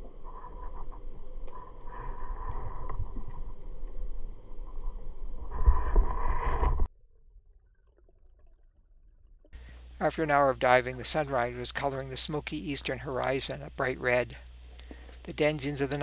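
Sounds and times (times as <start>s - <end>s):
muffled underwater rumble: 0.0s - 6.9s.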